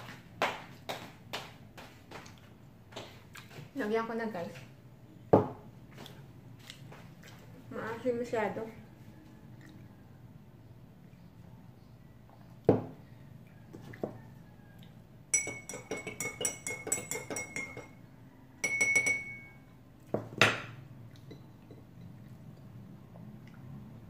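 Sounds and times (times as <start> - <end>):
glass knocking on table: 5.4 - 5.6, 12.7 - 13.0, 18.6 - 19.5, 20.2 - 20.8
spoon clinking in glass: 15.3 - 18.0, 18.6 - 19.7.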